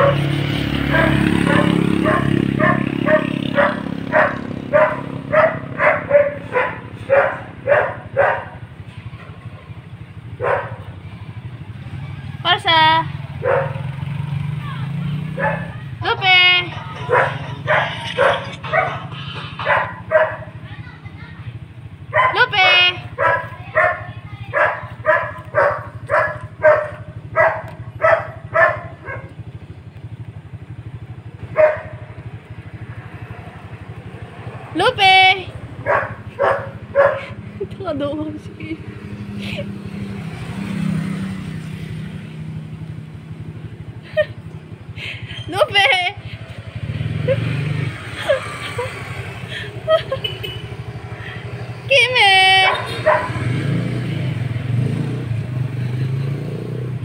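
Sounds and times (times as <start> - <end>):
dog barking: 0.0 - 9.7, 10.4 - 10.9, 13.4 - 14.0, 15.3 - 15.9, 16.8 - 20.7, 22.1 - 29.4, 31.5 - 32.1, 35.8 - 37.4, 52.5 - 53.6
small dog yapping: 15.4 - 15.8, 17.0 - 20.5, 22.2 - 29.3, 52.6 - 53.4.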